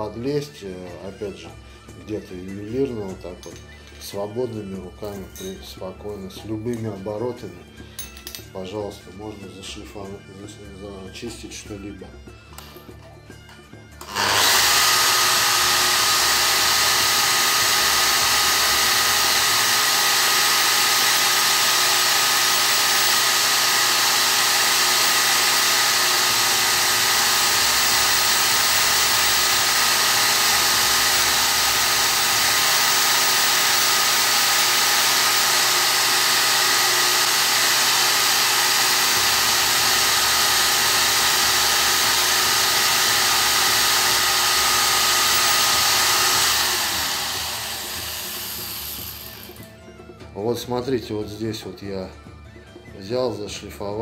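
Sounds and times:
angle grinder whining: 0:12.5 - 0:49.9
burr grinding steel: 0:14.0 - 0:49.7.

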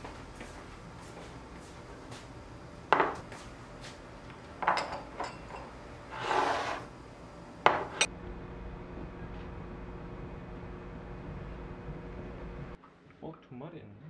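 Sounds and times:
ceramic bowls clinking on table: 0:04.6 - 0:06.7, 0:07.6 - 0:08.1
bowl scraping on table: 0:04.6 - 0:07.0.

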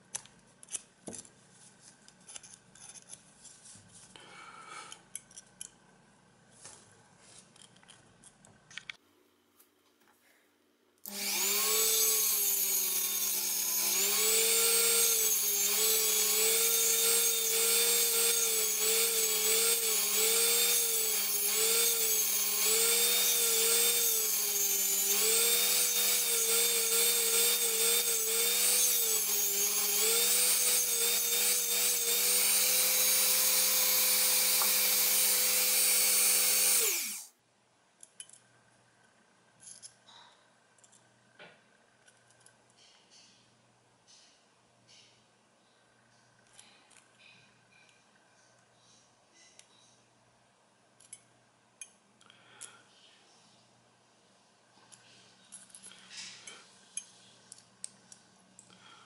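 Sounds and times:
rotary tool grinding metal: 0:11.1 - 0:37.3.

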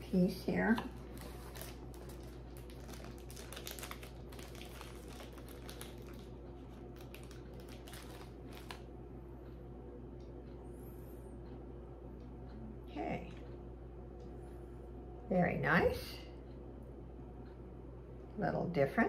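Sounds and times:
steady low hum: 0:00.0 - 0:19.0
packaging crinkling: 0:01.0 - 0:08.9.

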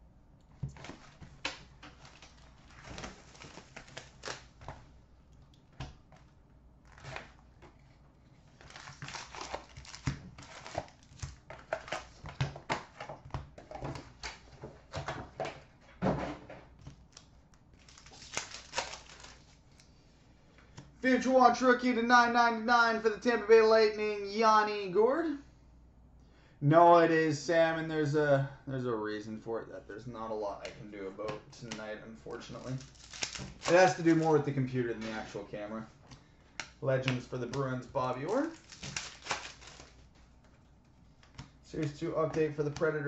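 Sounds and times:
pack wrappers crinkling: 0:00.7 - 0:04.8, 0:08.5 - 0:14.5, 0:17.0 - 0:19.9, 0:32.3 - 0:35.3, 0:36.6 - 0:40.3.

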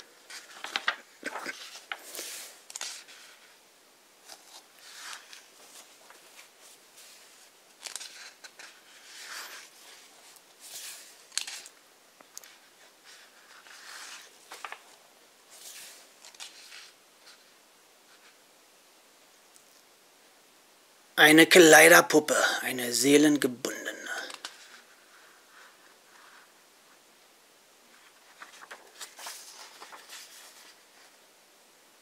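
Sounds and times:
book pages turning: 0:00.0 - 0:03.6, 0:04.2 - 0:18.4, 0:23.9 - 0:26.5, 0:27.9 - 0:31.2.

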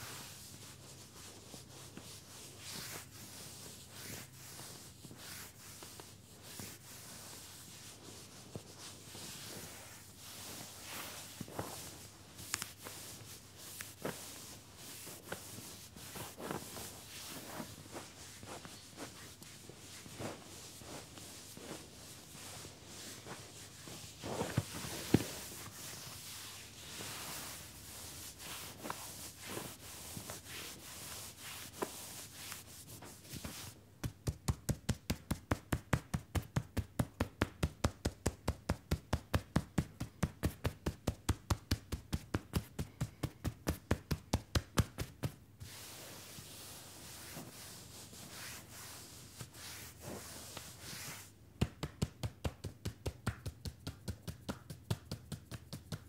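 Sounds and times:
hands rubbing through trousers: 0:00.0 - 0:56.0
quick percussive taps: 0:51.6 - 0:56.0.

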